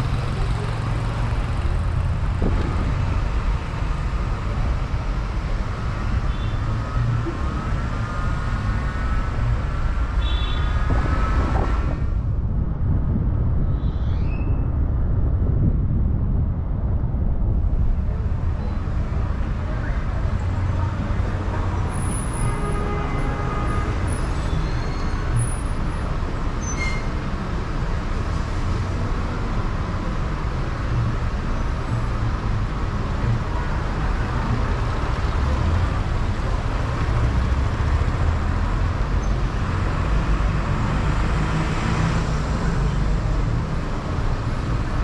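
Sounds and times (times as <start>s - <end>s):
idling engines rumbling: 0.0s - 5.7s
bus passing: 0.0s - 13.3s, 17.0s - 45.0s.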